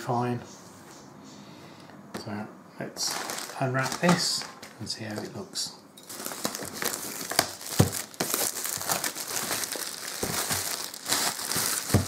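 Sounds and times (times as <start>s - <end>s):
plastic film tearing and crinkling: 3.0s - 4.8s, 6.0s - 12.0s.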